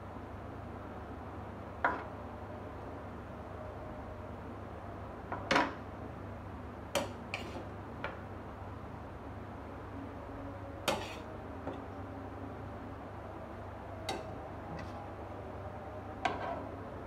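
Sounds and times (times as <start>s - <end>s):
cutlery clinking on plate and board: 10.9s - 11.2s.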